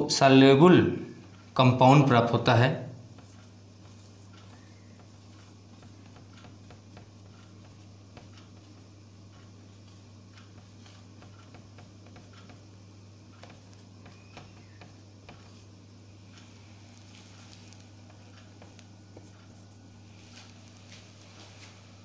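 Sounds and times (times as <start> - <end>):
low room hum: 0.0 - 22.0
marker pen squeaking on whiteboard: 3.1 - 12.6, 13.3 - 20.8.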